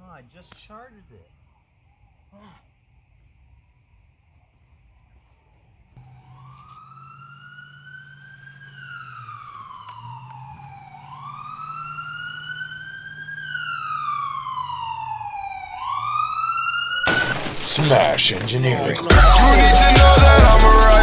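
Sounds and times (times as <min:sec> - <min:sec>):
wailing siren: 0:05.8 - 0:17.6.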